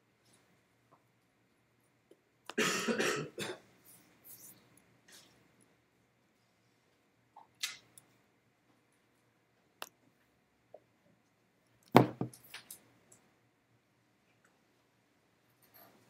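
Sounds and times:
small clicks and rustles: 0:07.4 - 0:13.3.

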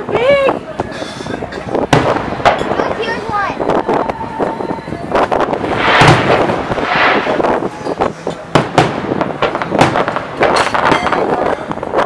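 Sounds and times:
fireworks bursting: 0:01.7 - 0:12.0
crackling hiss: 0:03.6 - 0:12.0.

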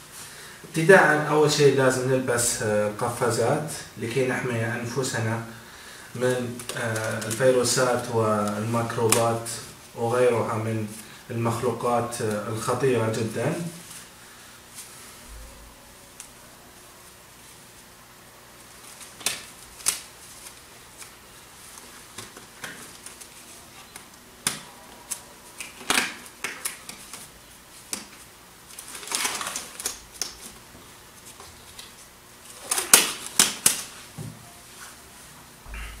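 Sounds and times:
disposable gloves snapping: 0:19.0 - 0:21.1, 0:23.9 - 0:27.2, 0:27.8 - 0:30.6, 0:32.6 - 0:33.9.

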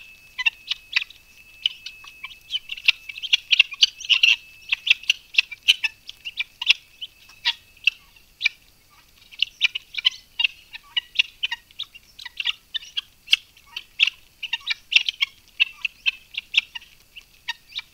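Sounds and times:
birds chirping: 0:00.0 - 0:17.9.

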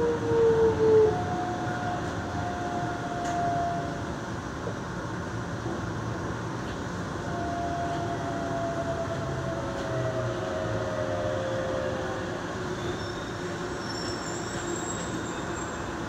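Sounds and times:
wheels rumbling on rail: 0:00.0 - 0:16.0.

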